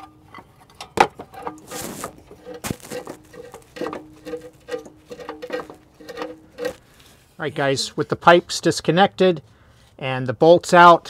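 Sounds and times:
short scraping rub: 1.5 - 8.5
metal fittings clicking and knocking: 2.3 - 6.8.

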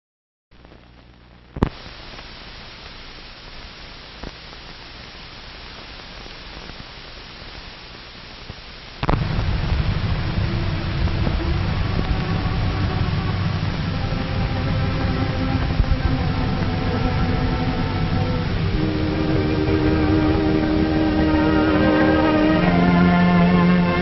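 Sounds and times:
film soundtrack hiss and crackle: 0.5 - 24.0
sharp pops: 8.5 - 10.2
low hum: 9.0 - 24.0.

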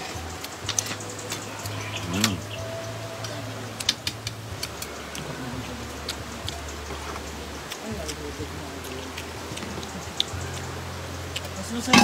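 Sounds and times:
utensils clicking against plates: 11.4 - 12.0.

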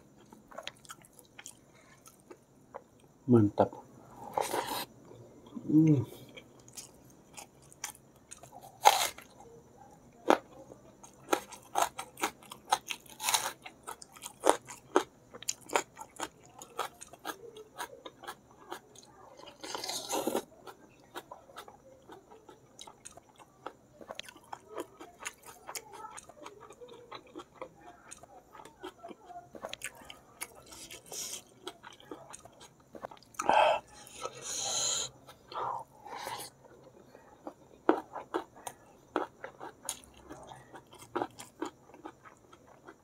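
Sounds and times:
wet chewing and mouth clicks: 10.3 - 36.8.

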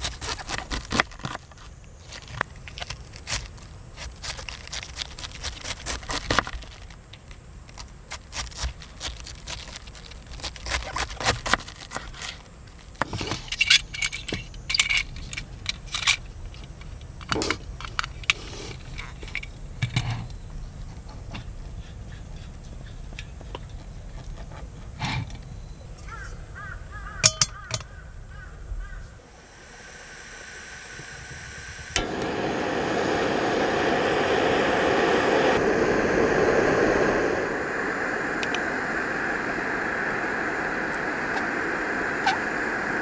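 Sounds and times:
bird calls: 25.5 - 29.3
gas burner rushing: 29.2 - 43.0
sharp ignition click: 30.0 - 43.0.

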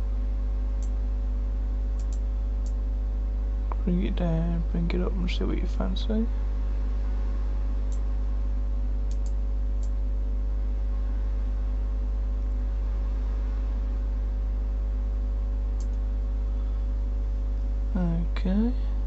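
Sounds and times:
electrical hum: 0.0 - 19.0
computer mouse clicks: 2.0 - 2.8, 9.1 - 10.0, 15.8 - 16.0.

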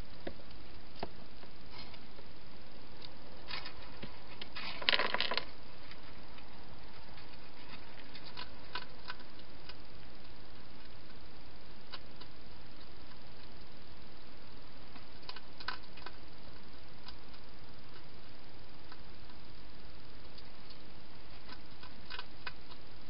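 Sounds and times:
steady hiss: 0.0 - 23.0
hedgehog eating clicks and crunches: 3.0 - 13.8, 14.9 - 19.6, 20.2 - 22.9.

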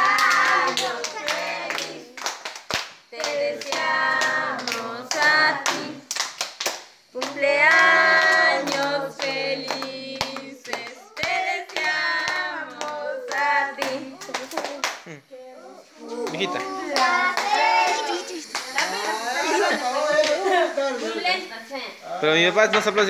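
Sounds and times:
group singing: 0.0 - 2.5, 3.1 - 6.4, 7.1 - 14.9, 15.7 - 21.5
hands clapping: 0.1 - 15.1, 16.2 - 19.1, 20.2 - 20.4.

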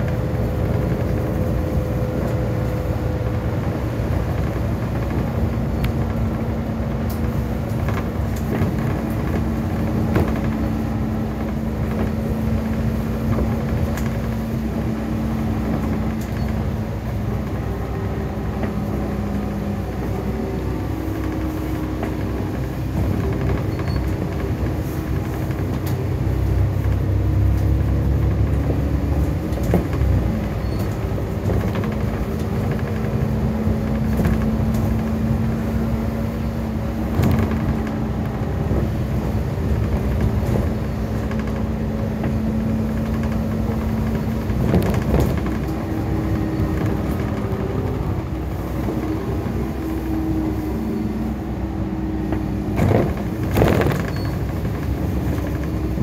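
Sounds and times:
bus engine drone: 0.0 - 56.0
deep road rumble: 0.0 - 56.0
small rattles and clicks: 21.1 - 49.9.

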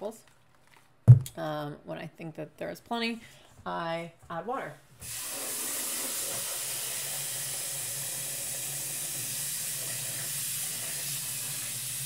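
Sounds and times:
faucet water into metal bowl: 5.0 - 12.0.

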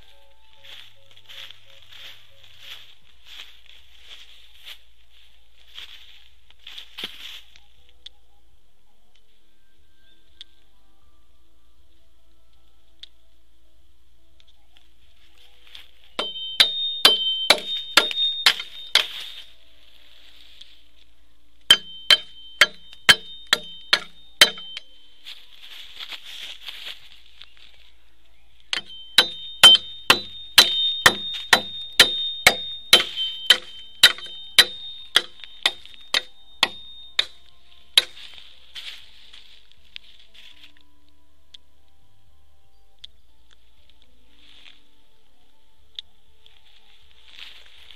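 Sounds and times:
blade chopping bamboo: 16.2 - 19.1, 21.7 - 24.8, 28.8 - 37.4.

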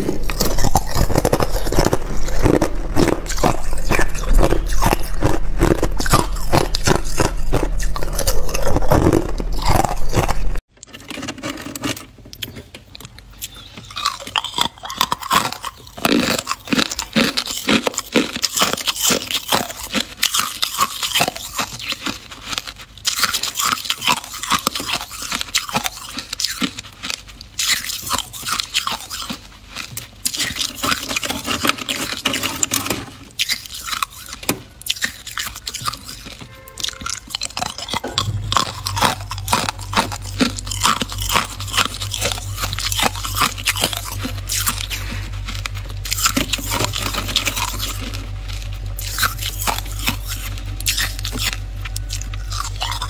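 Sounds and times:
low hum: 0.0 - 10.7, 36.4 - 53.0
ice being bitten and crunched: 0.0 - 53.0.

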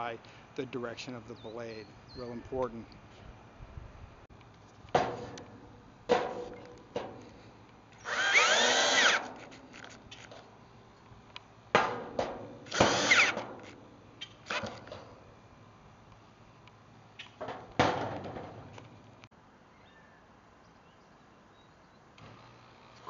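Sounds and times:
cordless drill whining: 8.0 - 9.3, 12.7 - 13.4.

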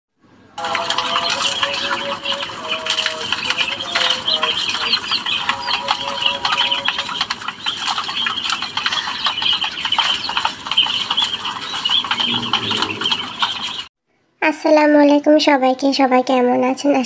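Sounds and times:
birds tapping on wire cage: 0.6 - 13.8
quail chirping: 0.6 - 13.9.

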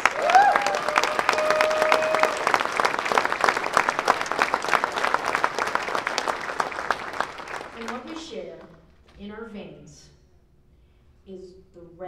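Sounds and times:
crowd cheering: 0.0 - 8.3
audience clapping: 0.0 - 8.8.

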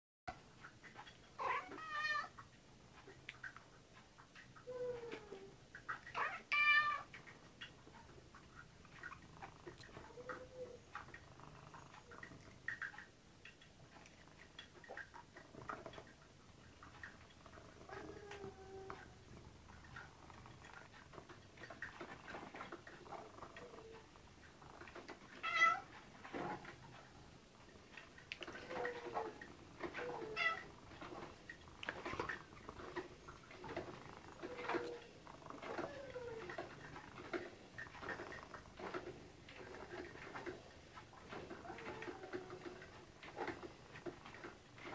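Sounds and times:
light clicks and taps: 0.3 - 44.9
cats meowing: 1.4 - 2.4, 4.6 - 7.1, 9.9 - 10.8, 17.7 - 19.2, 25.3 - 25.9, 28.5 - 30.8, 34.4 - 36.8, 41.5 - 42.8.

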